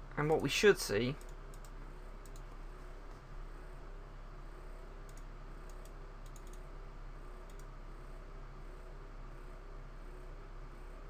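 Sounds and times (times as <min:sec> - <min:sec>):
low room hum: 0:00.0 - 0:11.0
computer mouse clicks: 0:01.2 - 0:02.6, 0:05.1 - 0:06.7, 0:07.4 - 0:07.7.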